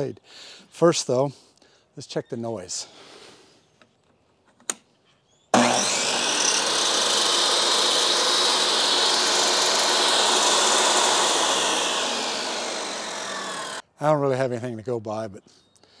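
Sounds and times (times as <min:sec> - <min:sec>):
table saw motor whining: 0:05.5 - 0:13.8.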